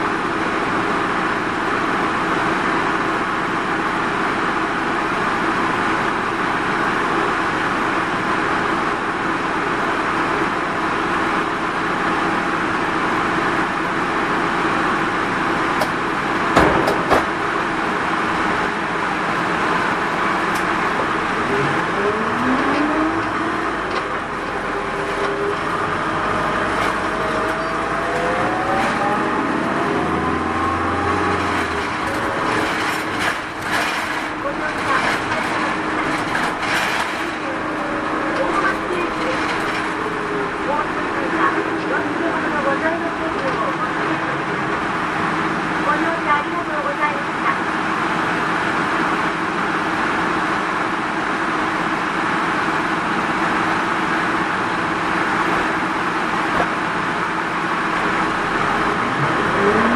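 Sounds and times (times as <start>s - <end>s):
minibus engine and road noise: 0.0s - 59.9s
rising whine: 20.5s - 36.6s.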